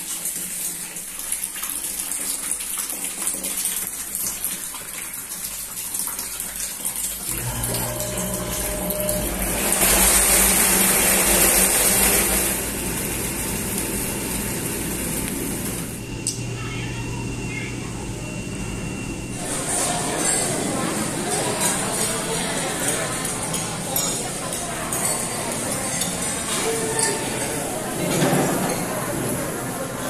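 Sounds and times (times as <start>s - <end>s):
water running into a tub: 0.0s - 16.1s, 19.3s - 29.9s
jet pump humming: 7.2s - 30.0s.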